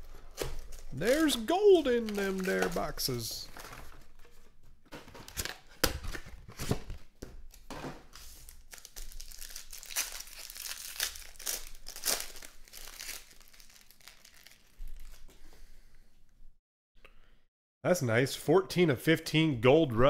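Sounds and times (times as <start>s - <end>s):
foil wrapper crinkling and tearing: 0.0s - 3.9s, 8.3s - 15.3s.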